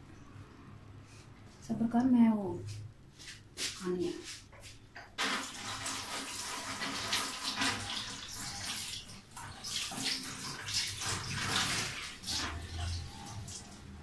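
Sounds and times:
running tap water splashing: 0:05.2 - 0:14.0.

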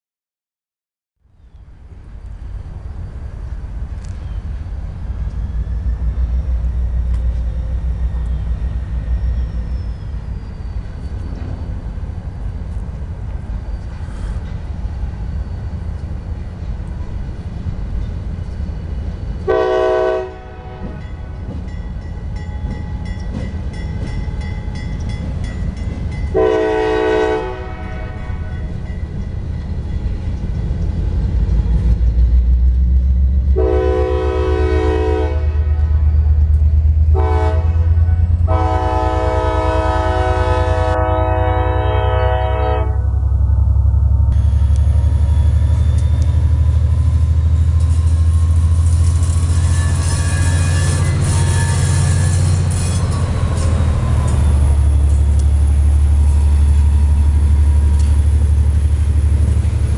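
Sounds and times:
locomotive engine rumble: 0:01.3 - 0:59.9
locomotive horn blasts: 0:19.5 - 0:21.5, 0:26.3 - 0:28.7, 0:33.5 - 0:36.1, 0:37.1 - 0:43.3.

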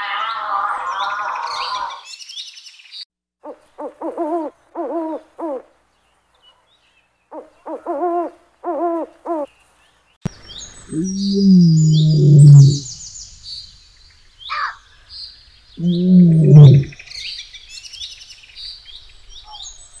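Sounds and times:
owl hooting: 0:03.4 - 0:05.6, 0:07.3 - 0:09.5, 0:10.9 - 0:12.9, 0:15.8 - 0:17.0
high bird chirps: 0:10.3 - 0:13.0
animal call: 0:10.9 - 0:12.9, 0:15.8 - 0:17.0.

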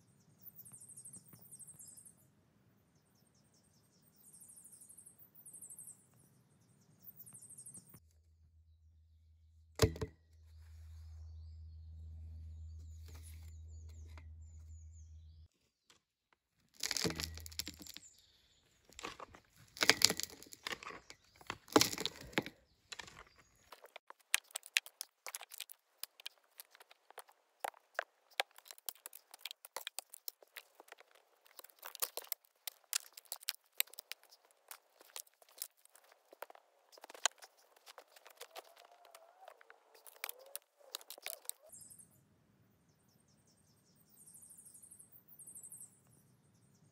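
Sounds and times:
crunching of soil and debris: 0:09.8 - 0:41.8
hand tool striking dirt: 0:16.8 - 0:18.1, 0:18.9 - 0:41.5.

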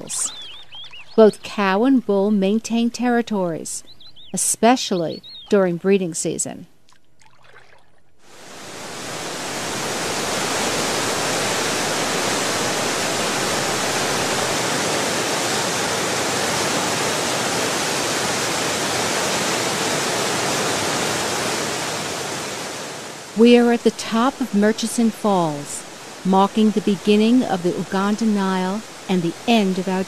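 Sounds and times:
waterfall rushing: 0:08.3 - 0:30.0.

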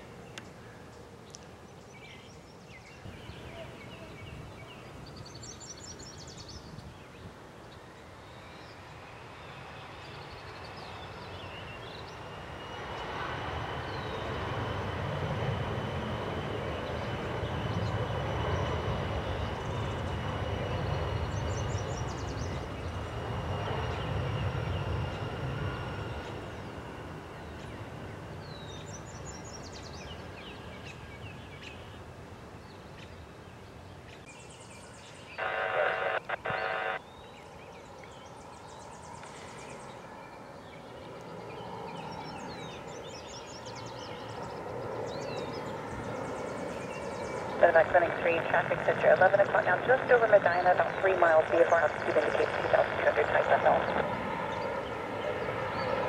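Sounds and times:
steady high engine whine: 0:07.8 - 0:30.8, 0:35.3 - 0:37.1, 0:39.2 - 0:56.0
jet airliner passing: 0:07.8 - 0:31.3, 0:35.4 - 0:37.0, 0:38.4 - 0:56.0.

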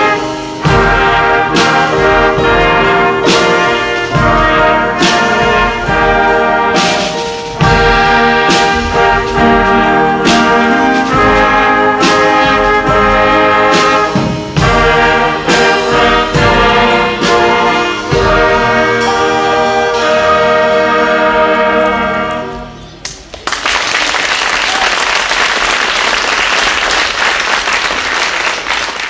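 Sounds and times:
brass ensemble playing: 0:00.0 - 0:22.9
audience applauding: 0:23.0 - 0:29.0.

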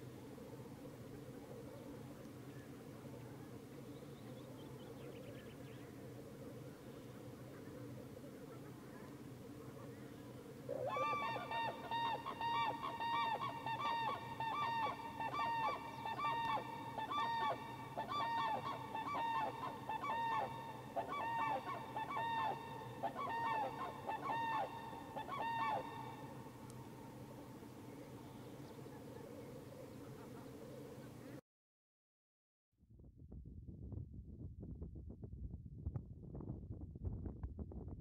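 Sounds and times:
cranes trumpeting calls: 0:10.7 - 0:31.0.

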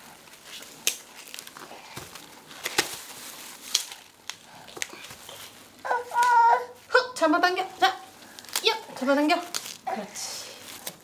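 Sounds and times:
corn husks crinkling and tearing: 0:00.0 - 0:06.5, 0:07.8 - 0:11.0.

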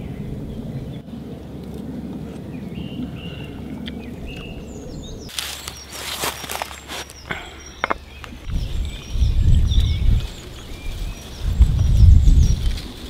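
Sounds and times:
birds chirping: 0:00.0 - 0:13.0
low outdoor rumble: 0:00.0 - 0:13.0
rustling and scraping: 0:05.3 - 0:08.6.

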